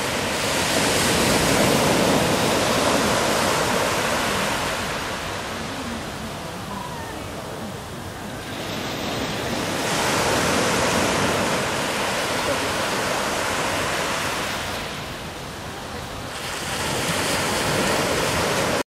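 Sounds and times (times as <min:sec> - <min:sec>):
sea waves rushing: 0:00.0 - 0:18.8.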